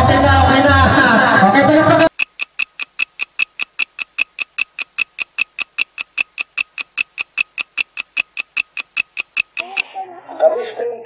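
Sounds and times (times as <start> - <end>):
clock ticking: 1.8 - 9.8.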